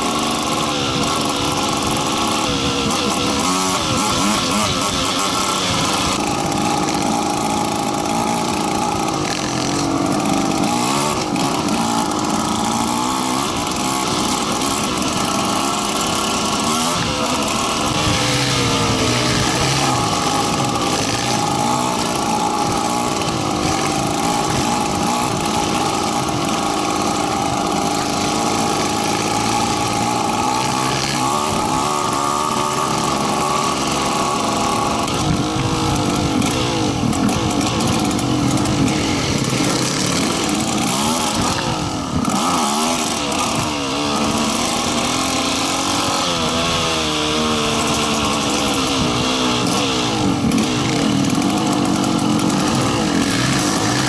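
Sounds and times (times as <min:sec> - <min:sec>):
dirt bike engines revving: 0:00.0 - 0:54.0.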